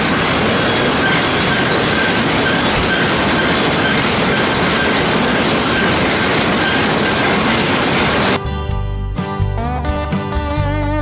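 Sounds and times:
baler metallic clatter: 0.0 - 8.4.

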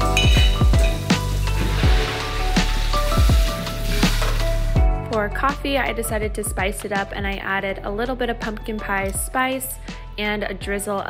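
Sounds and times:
music with deep kick drum beat: 0.0 - 7.6, 8.4 - 11.0
faucet running into sink: 0.1 - 4.7.

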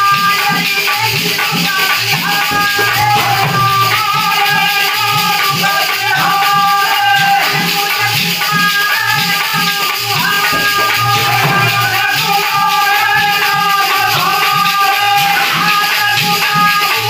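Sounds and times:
jingling hand percussion: 0.0 - 17.0
man singing devotional melody: 0.0 - 17.0
hand drum beat: 0.1 - 17.0.

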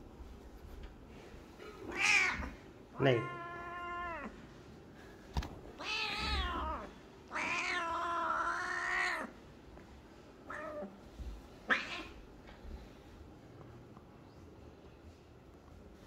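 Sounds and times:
cat meowing: 1.8 - 4.4, 5.8 - 9.4, 10.5 - 10.9, 11.6 - 12.2.

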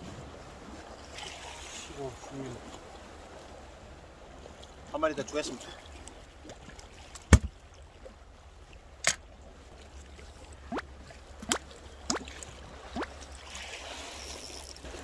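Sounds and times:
sea water washing on rocks: 0.0 - 3.5, 9.0 - 15.0.

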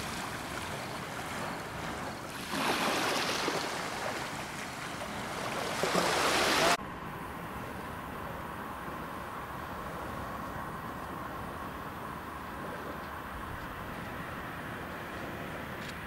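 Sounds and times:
water splashing: 0.0 - 6.8.

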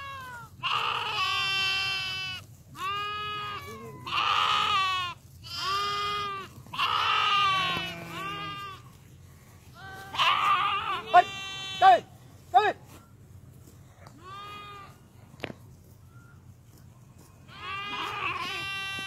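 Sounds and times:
sheep bleating: 0.0 - 9.0, 9.7 - 12.1, 14.0 - 15.0, 17.5 - 19.0.

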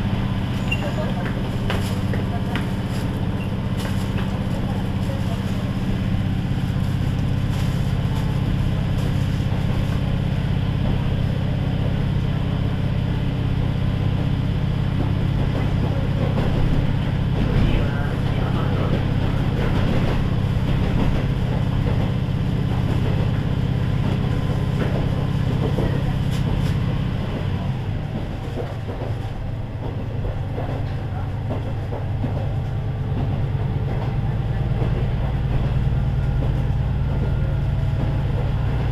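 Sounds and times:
diesel engine drone: 0.0 - 38.9
wheels on rails: 0.0 - 38.9.

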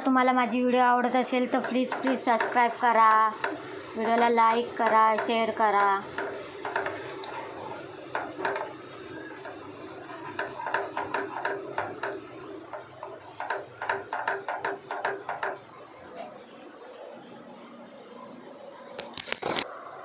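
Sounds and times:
spatula scraping and tapping pan: 0.6 - 15.7.

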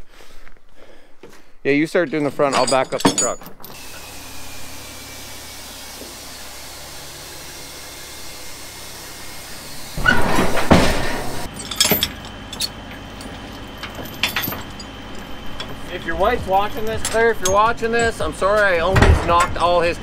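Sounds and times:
chains clinking on trailer deck: 2.1 - 3.9, 11.3 - 20.0
loud rough noise: 3.8 - 20.0
steady low rumble: 11.2 - 20.0.

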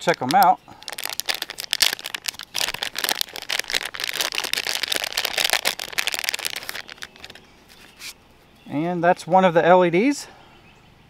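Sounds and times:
foil bag crinkling: 0.0 - 7.9.

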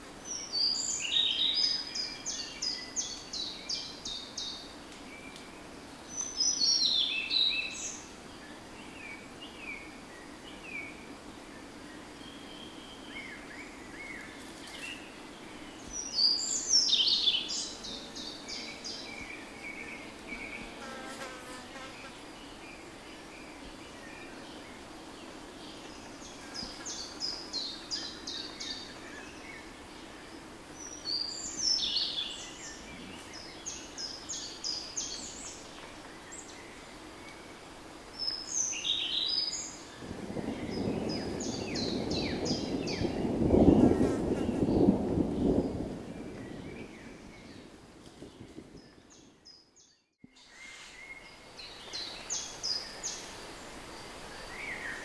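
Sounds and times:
songbird singing: 0.0 - 55.0
flying insect buzzing: 17.5 - 22.3.

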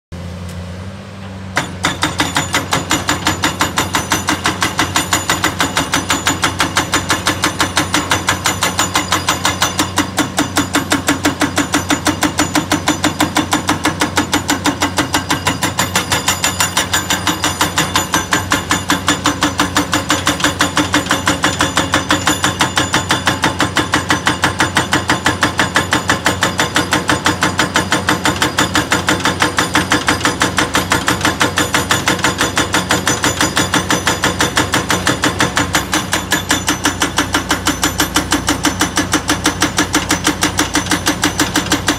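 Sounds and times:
excavator diesel engine: 0.2 - 41.9
hydraulic rock breaker pounding: 1.5 - 41.9.

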